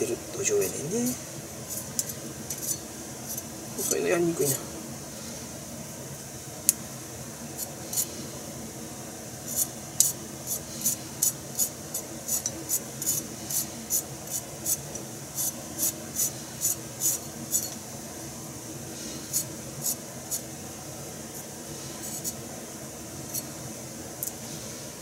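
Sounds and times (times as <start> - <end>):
knife scraping burdock root: 1.7 - 4.0, 9.5 - 14.8, 19.3 - 20.5, 21.4 - 22.4.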